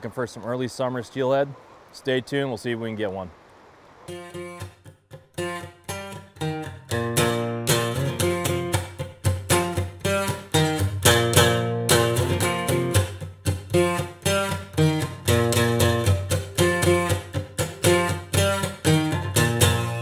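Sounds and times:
strummed guitar music: 4.1 - 20.0.

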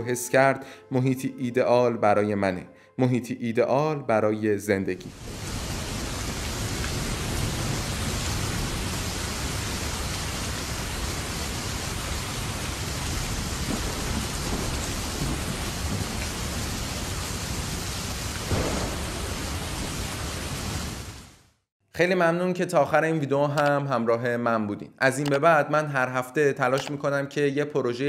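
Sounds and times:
thunder rumbling: 5.1 - 21.4
heavy rain: 5.1 - 21.6.

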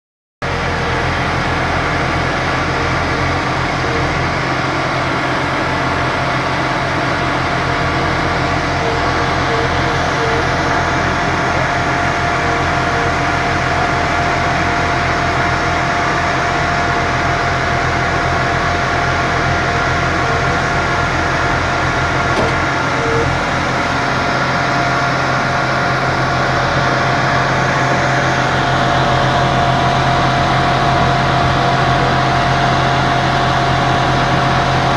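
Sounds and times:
drilling rig engine drone: 0.4 - 34.9
steady mechanical whine: 0.4 - 34.9.

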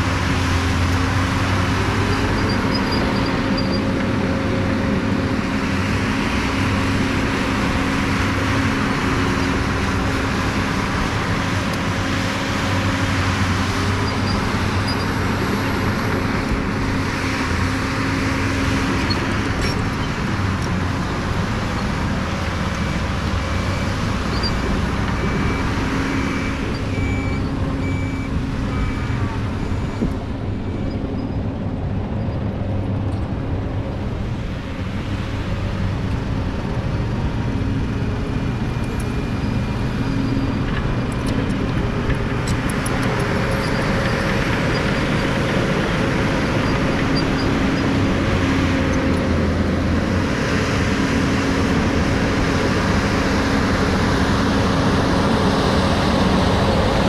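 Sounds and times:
crawler dozer engine running: 0.0 - 57.0
diesel truck engine running: 0.0 - 57.0
reversing alarm beeping: 25.2 - 30.9.

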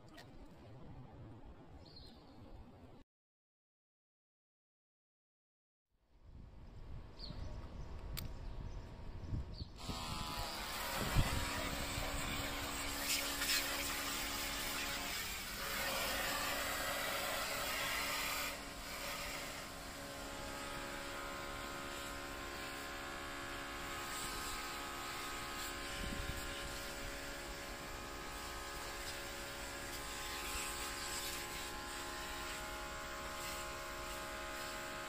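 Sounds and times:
electric pump whine: 9.8 - 35.0.

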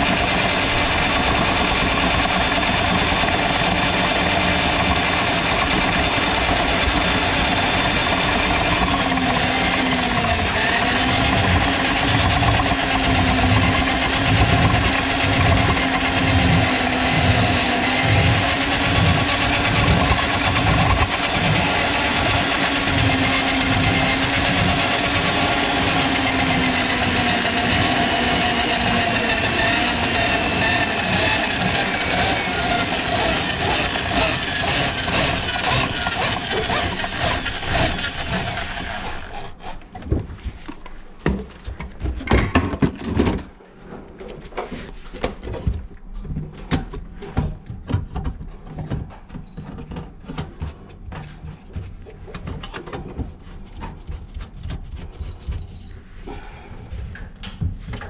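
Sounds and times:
rapid clicking rattle: 0.0 - 27.8, 28.8 - 39.6
drain auger motor running: 0.0 - 39.8.

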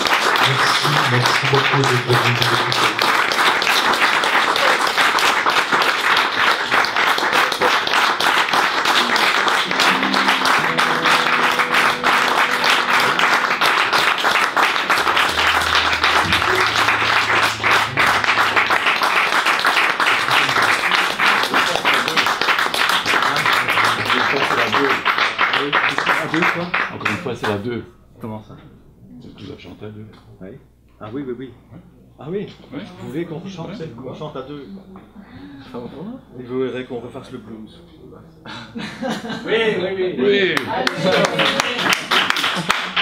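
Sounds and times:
audience applauding: 0.0 - 27.6, 40.6 - 43.0
electric guitar low notes: 9.4 - 21.4.

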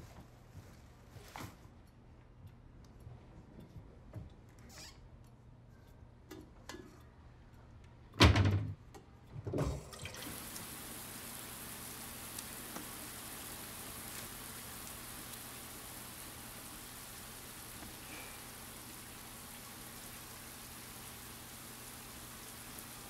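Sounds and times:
hiss of falling water: 10.0 - 23.0.

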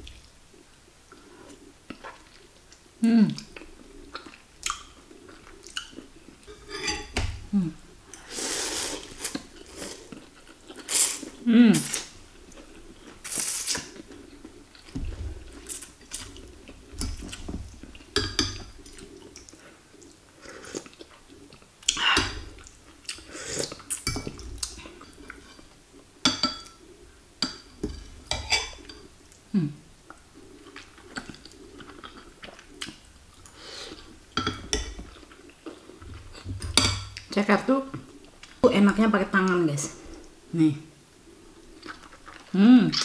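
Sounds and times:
slurping and chewing noodles: 8.1 - 26.0, 30.1 - 36.4, 41.2 - 43.0.

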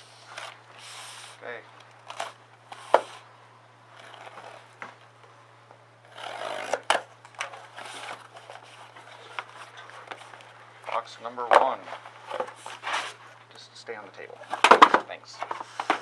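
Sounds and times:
tape tearing: 6.1 - 9.7.

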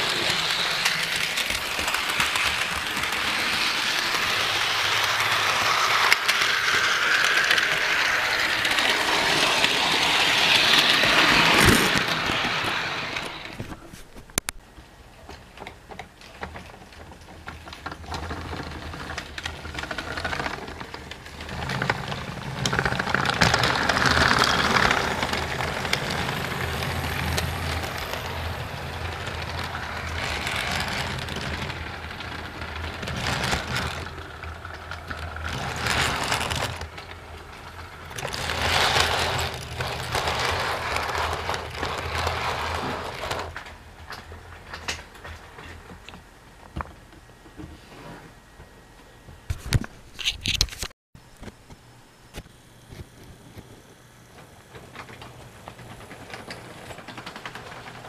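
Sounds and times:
model train motor hum: 0.0 - 13.6, 18.1 - 43.6
wheels rattling on rails: 0.0 - 13.6, 15.3 - 46.0, 54.3 - 58.0.

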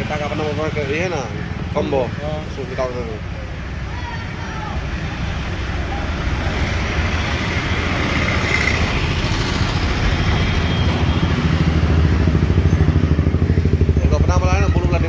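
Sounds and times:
engine pulsing rumble: 4.8 - 15.0.

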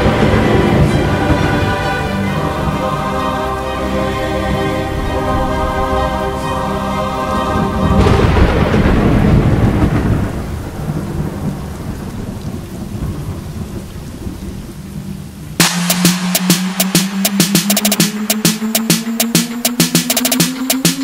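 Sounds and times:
held music chord: 0.0 - 8.6, 15.6 - 21.0
thunder-like crack and rumble: 8.0 - 14.8.

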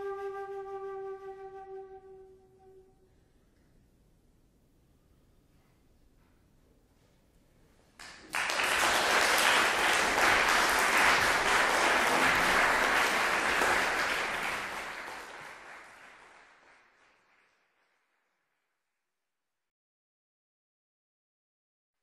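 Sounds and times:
audience applauding: 8.0 - 18.2.

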